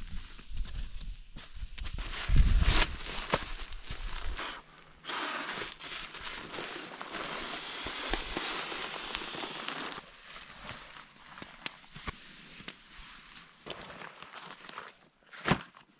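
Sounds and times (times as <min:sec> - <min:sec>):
footsteps on gravel: 0:00.0 - 0:11.9
sleeping bag rustling: 0:02.0 - 0:15.0.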